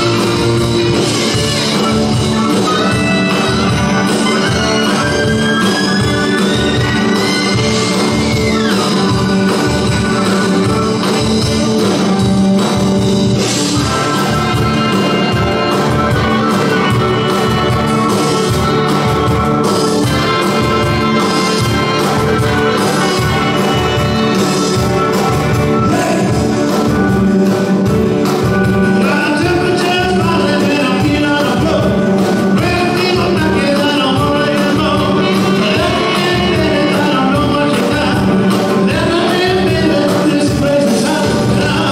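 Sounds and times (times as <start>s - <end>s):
live band playing: 0.0s - 41.9s
steady drum beat: 0.0s - 41.9s
person singing: 25.8s - 27.1s, 28.6s - 41.9s.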